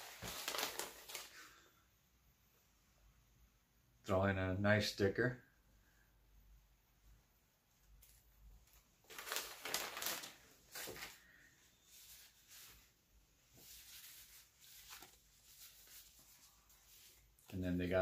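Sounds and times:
plastic bag crinkling: 0:00.0 - 0:01.4, 0:09.0 - 0:11.3.

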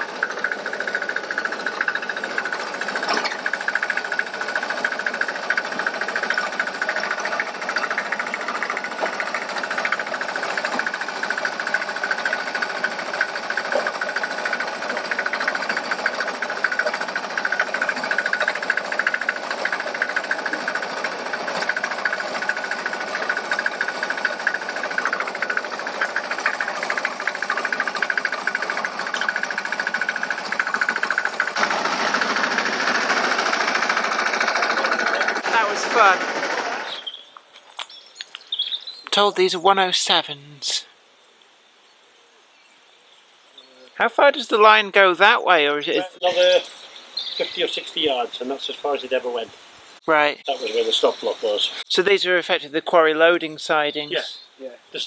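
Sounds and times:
small engine rattling: 0:00.0 - 0:37.2.

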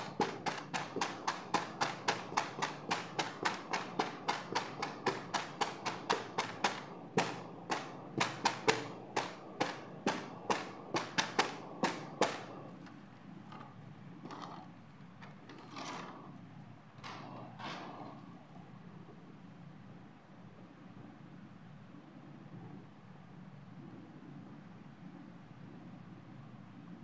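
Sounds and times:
fingers tapping on boxes: 0:00.0 - 0:12.6.

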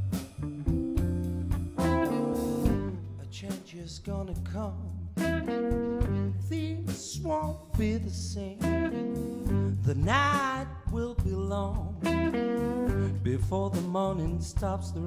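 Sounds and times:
blues band playing: 0:00.0 - 0:03.8, 0:04.6 - 0:14.8
saxophone soloing: 0:01.8 - 0:03.1, 0:05.2 - 0:06.6.

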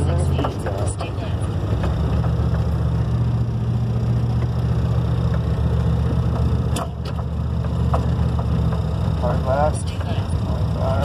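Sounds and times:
truck engine droning: 0:00.0 - 0:11.0
sharp knocks and rattles: 0:01.7 - 0:03.1, 0:05.2 - 0:09.2.

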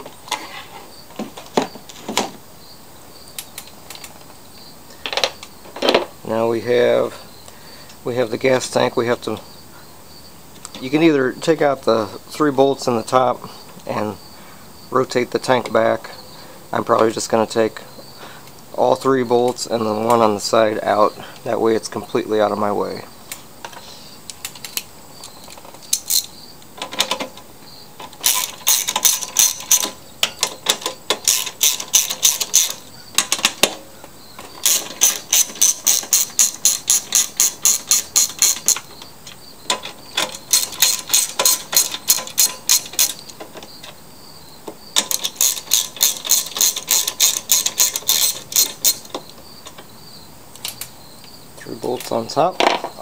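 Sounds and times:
socket ratchet clicking: 0:24.3 - 0:26.3, 0:28.1 - 0:33.7, 0:34.5 - 0:43.9, 0:44.9 - 0:49.8.

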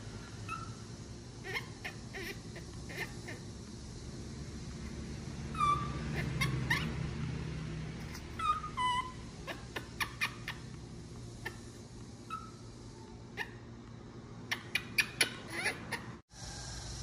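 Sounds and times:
baby monkey coo calls: 0:00.2 - 0:03.6, 0:05.5 - 0:07.0, 0:08.0 - 0:13.8, 0:14.4 - 0:16.2
baby monkey squeaks: 0:00.4 - 0:00.8, 0:01.4 - 0:03.4, 0:05.5 - 0:07.0, 0:08.0 - 0:10.8, 0:11.4 - 0:13.7, 0:14.5 - 0:16.2.

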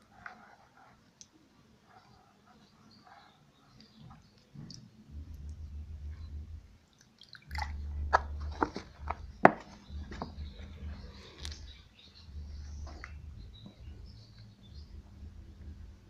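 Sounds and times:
phone handling rumble: 0:07.5 - 0:11.7.

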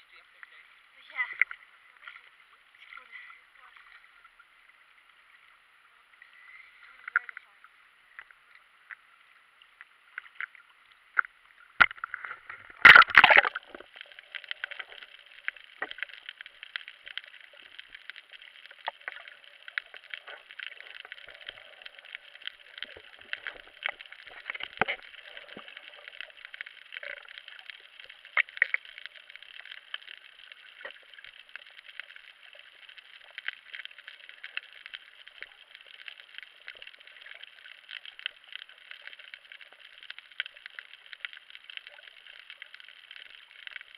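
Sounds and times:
underwater clicks and crackles: 0:00.0 - 0:43.9
water splash and gurgle: 0:06.1 - 0:43.9.

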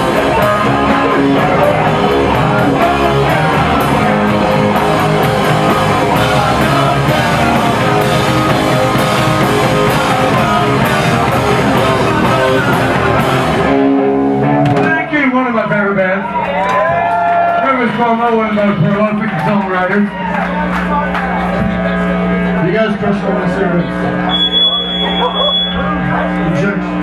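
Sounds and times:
drum kit with cymbal hits: 0:00.0 - 0:15.1
bass guitar: 0:00.0 - 0:27.0
electric guitars: 0:00.0 - 0:27.0.

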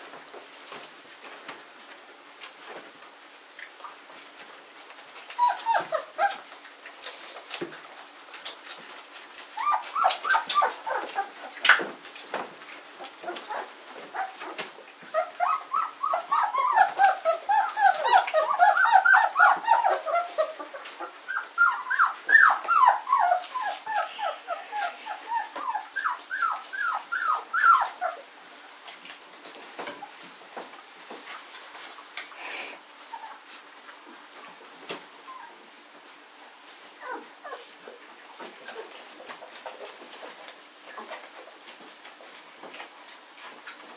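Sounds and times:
puppies whimpering and squealing: 0:05.2 - 0:07.2, 0:09.4 - 0:11.9, 0:13.1 - 0:28.8, 0:33.0 - 0:33.5, 0:37.0 - 0:39.2.

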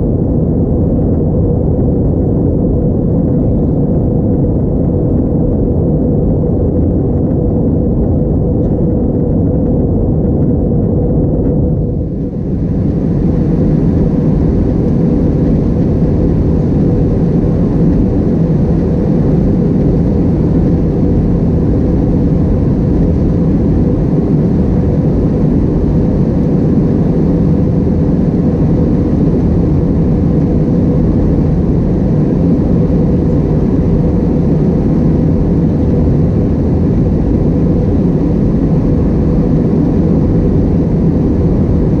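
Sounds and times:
air rushing over fuselage: 0:00.0 - 0:42.0
jet engines droning: 0:00.0 - 0:42.0.

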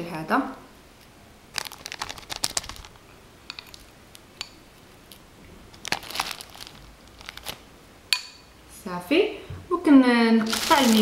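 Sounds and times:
plastic bag crinkling: 0:01.5 - 0:03.0, 0:05.7 - 0:07.6, 0:10.4 - 0:11.0.

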